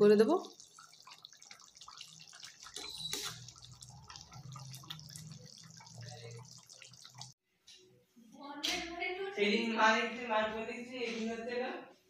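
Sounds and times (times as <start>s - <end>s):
gravy simmering and popping: 0.0s - 7.4s.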